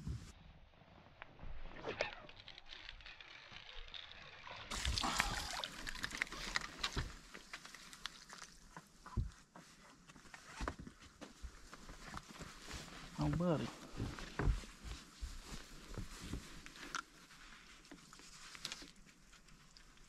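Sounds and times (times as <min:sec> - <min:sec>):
fish splashing at surface: 0:04.7 - 0:06.8.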